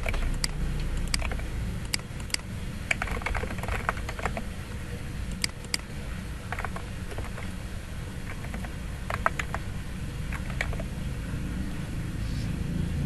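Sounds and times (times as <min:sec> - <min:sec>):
typing on computer keyboard: 0:00.0 - 0:04.5, 0:06.5 - 0:07.5, 0:08.2 - 0:09.6, 0:10.3 - 0:10.9
steady low hum: 0:00.0 - 0:13.0.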